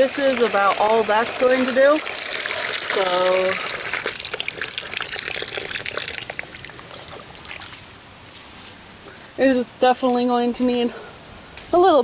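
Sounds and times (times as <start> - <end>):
water splashing on plastic: 0.0 - 7.9
water dripping and trickling: 0.0 - 8.0.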